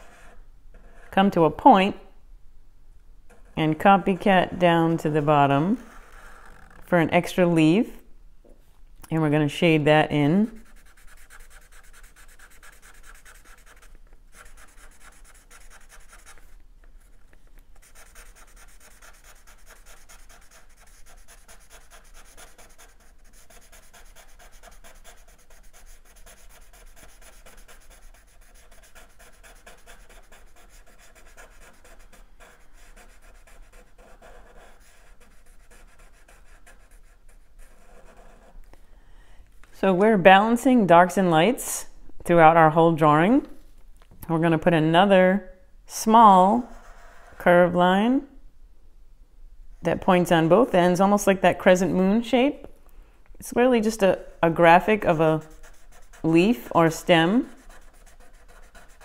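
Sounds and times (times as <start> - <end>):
marker scratching on paper: 3.3 - 6.8, 10.4 - 17.2, 17.8 - 38.6, 46.5 - 47.4, 54.9 - 59.0.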